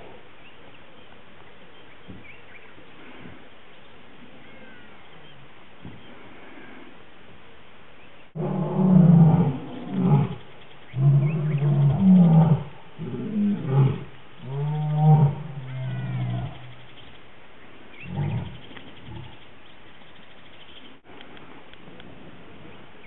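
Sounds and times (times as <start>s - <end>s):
lion roaring: 8.4s - 16.7s, 18.0s - 19.3s.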